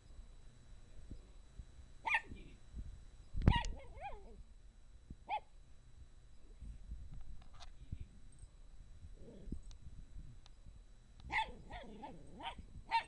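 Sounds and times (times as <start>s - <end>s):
small dog barking: 2.0s - 2.5s, 3.5s - 4.4s, 5.3s - 5.5s, 11.3s - 13.0s
dog yelping: 2.1s - 2.3s, 3.5s - 4.4s, 11.3s - 13.0s.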